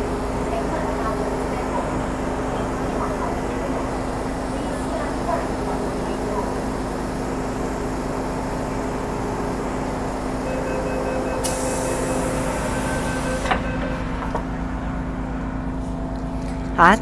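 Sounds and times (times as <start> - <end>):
train rumble and hum: 0.0 - 17.0
whining tones: 9.3 - 16.2
high hiss: 10.9 - 13.6.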